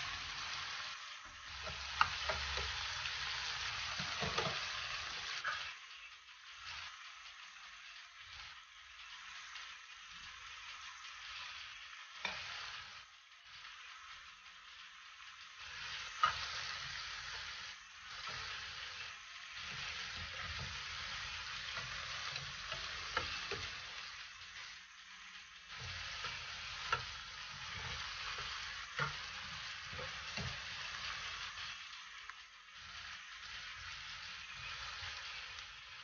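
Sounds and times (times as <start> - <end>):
onions sizzling in oil: 0.0 - 36.0
tongs scraping and tapping pan: 1.5 - 5.8, 12.2 - 12.8, 15.7 - 24.6, 25.7 - 31.8.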